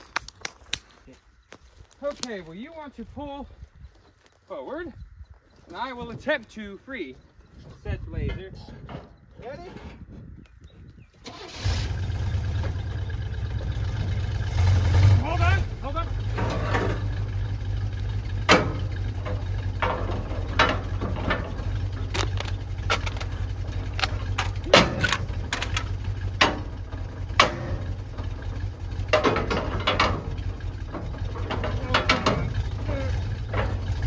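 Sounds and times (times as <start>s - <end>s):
engine idling: 11.2s - 34.0s
metal bar clanking and scraping: 16.2s - 17.4s, 18.2s - 34.0s.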